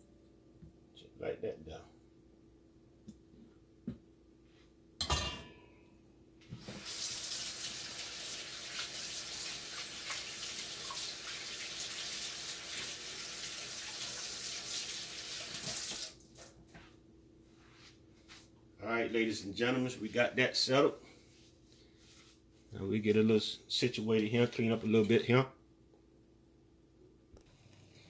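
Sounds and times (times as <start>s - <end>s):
faucet running into metal sink: 6.7s - 16.1s.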